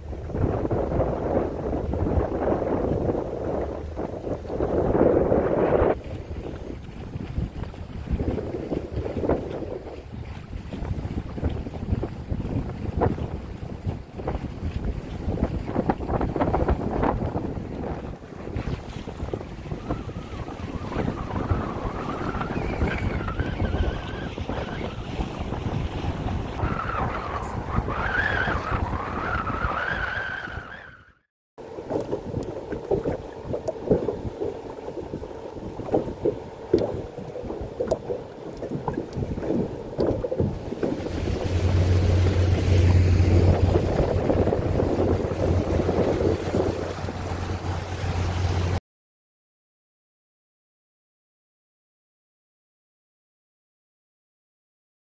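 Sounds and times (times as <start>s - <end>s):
boat engine humming: 0.0s - 30.8s, 31.6s - 48.8s
water rushing past hull: 0.0s - 48.8s
wind buffeting microphone: 0.0s - 48.8s
boat motor running: 31.6s - 48.8s.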